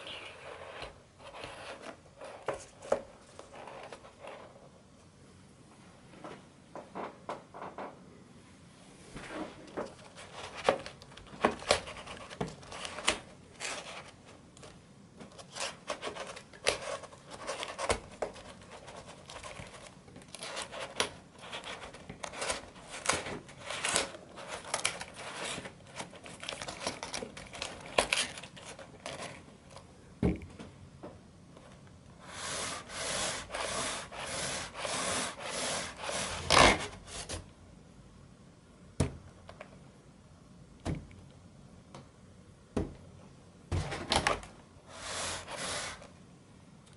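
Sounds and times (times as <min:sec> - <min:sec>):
cardstock wheels rubbing and clicking: 0:15.4 - 0:29.4, 0:32.2 - 0:37.4, 0:44.9 - 0:46.1.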